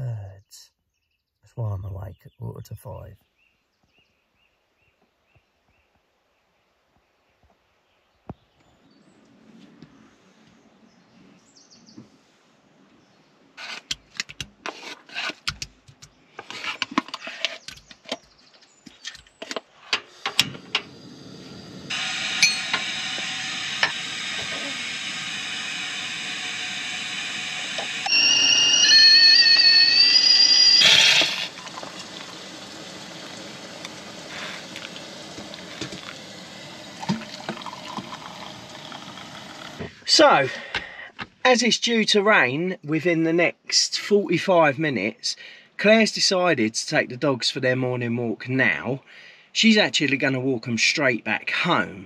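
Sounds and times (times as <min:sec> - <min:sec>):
hiss of gas burner: 0:20.0 - 0:40.0
kettle whistling: 0:20.2 - 0:40.2.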